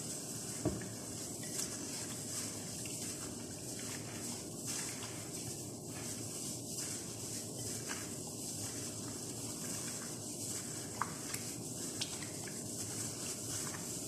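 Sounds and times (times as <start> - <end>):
plastic glove rustling: 0.0 - 14.0.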